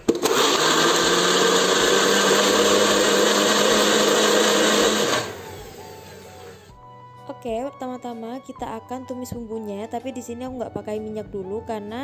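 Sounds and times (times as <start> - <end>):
electric blender running: 0.0 - 6.7.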